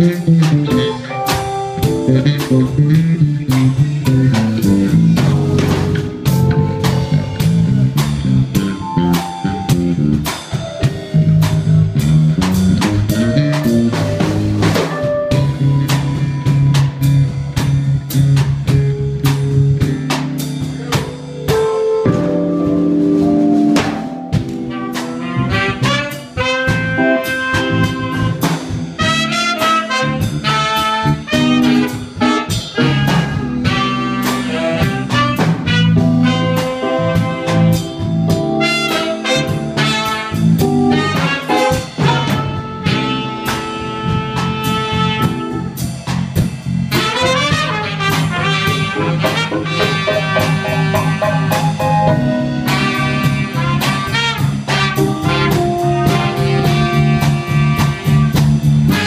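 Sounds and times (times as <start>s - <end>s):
live jazz band playing: 0.0s - 59.0s.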